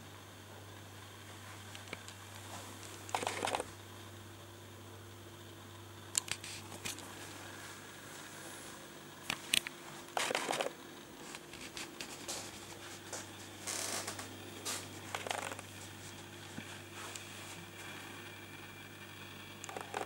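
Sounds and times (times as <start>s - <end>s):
steady low hum: 0.0s - 20.0s
camera handling clicks and rustles: 3.1s - 3.6s, 9.5s - 10.7s.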